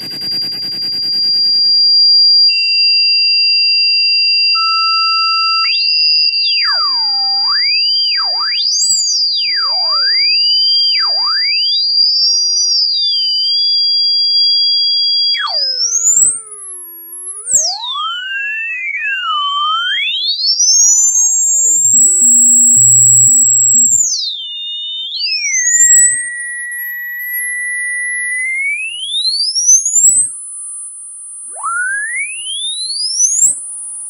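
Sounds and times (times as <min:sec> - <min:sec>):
siren-like gliding tones: 0:00.0 - 0:01.7, 0:15.3 - 0:24.5, 0:31.4 - 0:34.0
lower steady electronic tones: 0:00.0 - 0:01.8, 0:04.6 - 0:12.0, 0:15.1 - 0:34.0
high-pitched electronic whistle: 0:00.0 - 0:34.0.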